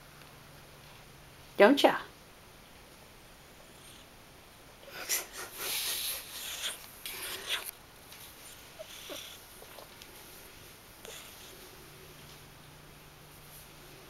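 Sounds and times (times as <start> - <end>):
cat sniffing and snuffling: 4.9 - 12.3.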